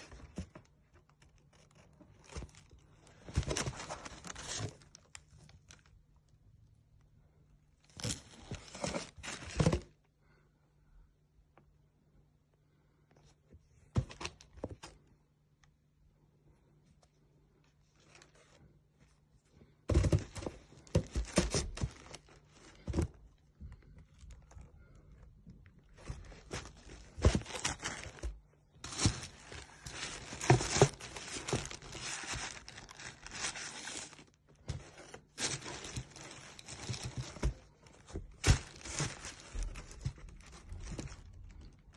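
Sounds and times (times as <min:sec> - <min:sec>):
plastic packaging crinkling: 0:25.9 - 0:41.9.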